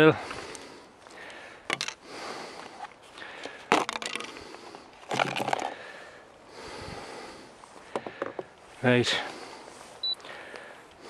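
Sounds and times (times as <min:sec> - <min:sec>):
plastic parts clattering on wooden table: 0:01.7 - 0:02.0, 0:03.7 - 0:04.4, 0:05.0 - 0:05.8.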